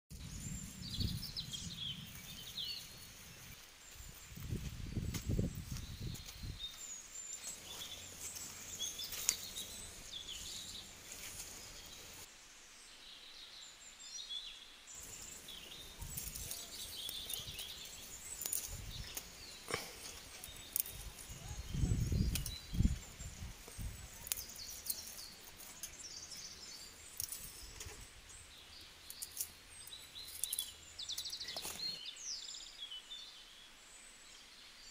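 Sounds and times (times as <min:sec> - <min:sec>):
birds chirping: 0:00.1 - 0:34.9
steady background hiss: 0:06.7 - 0:21.6.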